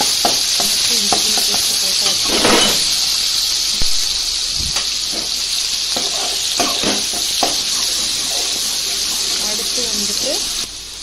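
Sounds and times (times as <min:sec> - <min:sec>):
paste sizzling in hot oil: 0:00.0 - 0:11.0
metal spoon scraping pan: 0:05.9 - 0:09.4.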